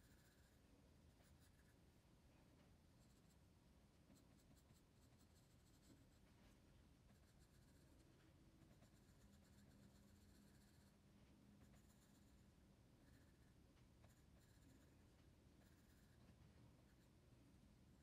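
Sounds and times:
pencil scratching on paper: 0.0s - 1.8s, 3.0s - 3.4s, 4.1s - 6.3s, 7.1s - 11.0s, 11.6s - 17.2s.

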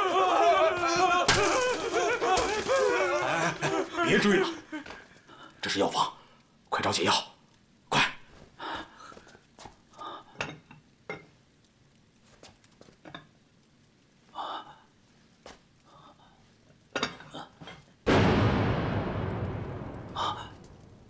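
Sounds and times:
loud rushing noise: 18.1s - 21.0s.

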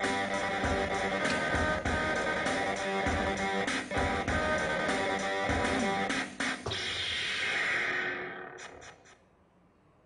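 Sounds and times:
recorded music with drums: 0.0s - 7.2s.

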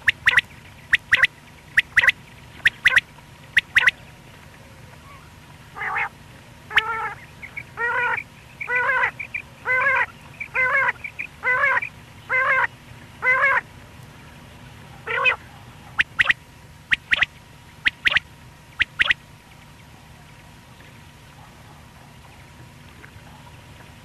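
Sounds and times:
high whistled bird notes: 0.0s - 3.9s, 16.0s - 19.2s
quail calling nasal notes: 0.0s - 4.1s, 5.8s - 6.1s, 6.7s - 13.6s, 15.0s - 15.4s, 16.0s - 19.2s.

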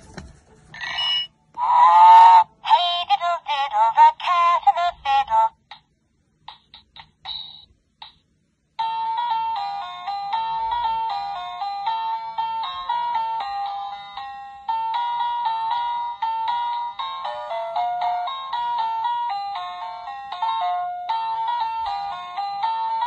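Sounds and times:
recorded voice from toy speaker: 0.8s - 5.8s.

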